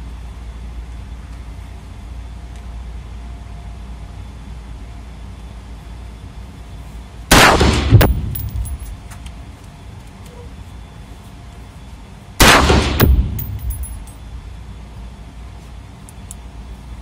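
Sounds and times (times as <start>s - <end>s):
rifle shots echoing indoors: 7.3s - 8.8s, 12.4s - 14.0s
light metallic tinks: 13.3s - 14.2s.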